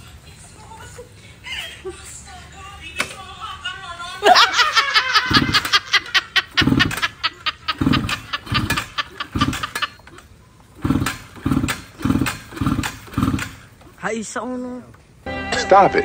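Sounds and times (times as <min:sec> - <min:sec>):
motorcycle kick-start cranking: 0:06.6 - 0:13.8.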